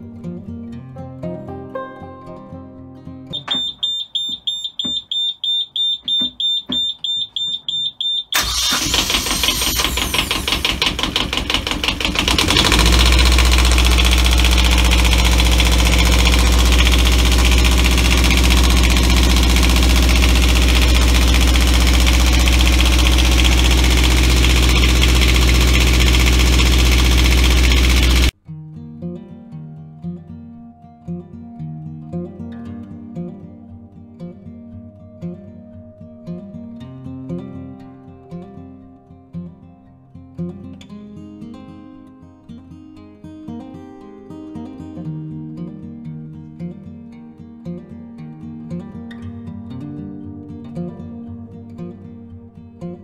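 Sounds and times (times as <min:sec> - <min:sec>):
warning buzzer beeping: 0:03.4 - 0:08.4
diesel engine cranking and running: 0:08.4 - 0:28.3.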